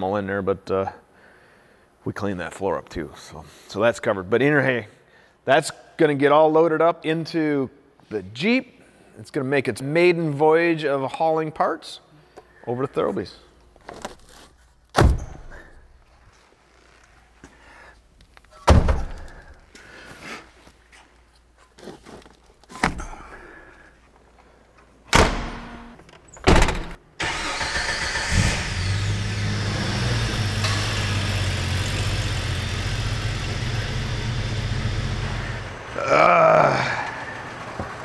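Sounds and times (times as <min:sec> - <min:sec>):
car doors shutting: 0:25.1 - 0:35.7
car engine running: 0:28.2 - 0:36.1.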